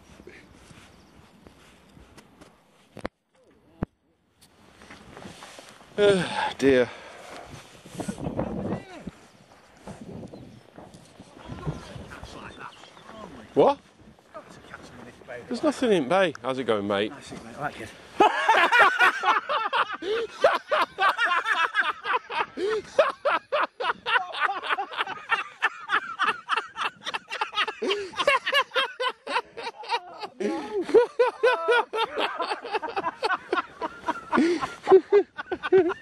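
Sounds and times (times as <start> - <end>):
laughter: 18.2 - 36.0.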